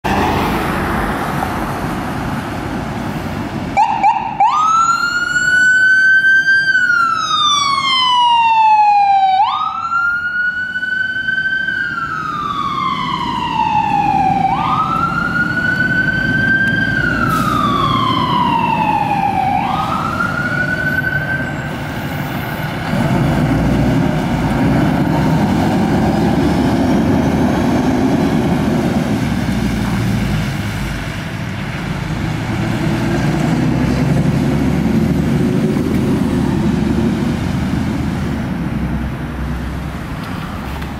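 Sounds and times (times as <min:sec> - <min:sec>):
heavy vehicle engine rumble: 0:00.0 - 0:03.8, 0:11.9 - 0:40.9
passing car: 0:00.0 - 0:06.4, 0:11.9 - 0:40.9
ambulance wail siren: 0:03.7 - 0:22.0.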